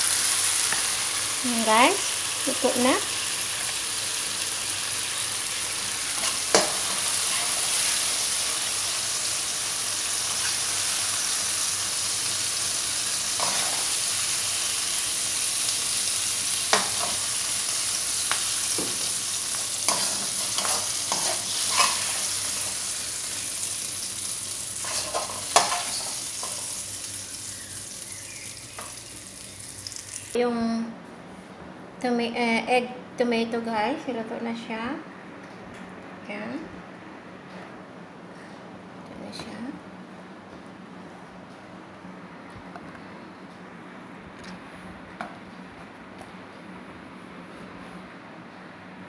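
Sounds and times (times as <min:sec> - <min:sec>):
egg sizzling in a wok: 0:00.0 - 0:30.4
metal spoon scraping a wok: 0:19.9 - 0:22.7, 0:24.8 - 0:26.6.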